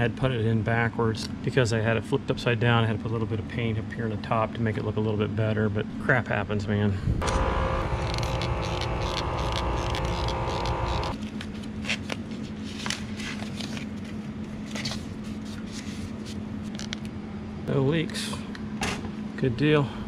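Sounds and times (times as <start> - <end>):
low steady hum: 7.0 - 20.0
many-toned drone: 7.2 - 11.2.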